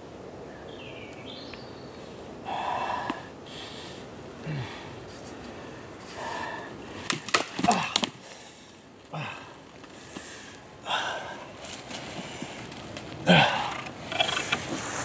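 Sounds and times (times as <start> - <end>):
person breathing hard and groaning: 2.4 - 5.0, 7.7 - 11.6, 13.2 - 13.9
twigs and branches cracking: 5.0 - 15.0.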